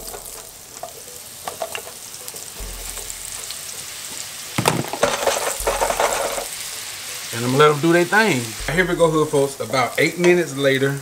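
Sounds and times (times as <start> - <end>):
mushrooms sizzling in a pan: 0.0 - 11.0
loud clatter: 4.6 - 6.5.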